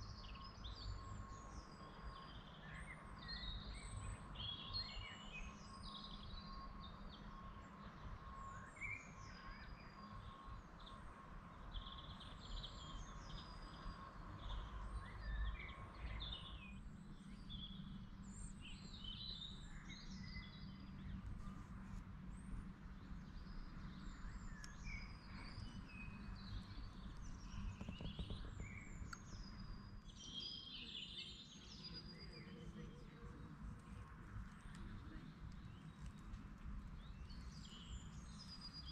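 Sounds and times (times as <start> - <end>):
birds singing and chirping: 11.7 - 21.6, 22.4 - 38.9
low background rumble: 11.8 - 38.9.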